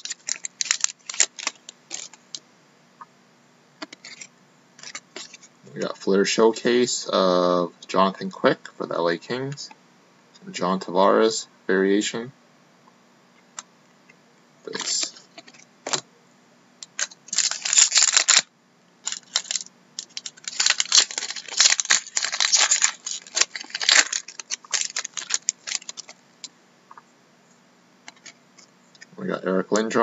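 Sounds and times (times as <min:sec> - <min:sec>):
foil wrapper crinkling and tearing: 0:00.0 - 0:02.2, 0:04.0 - 0:05.4, 0:16.9 - 0:26.2.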